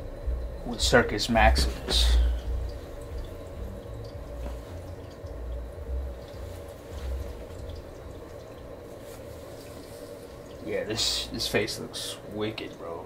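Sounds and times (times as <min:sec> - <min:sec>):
dull low thumps: 0:00.0 - 0:08.8.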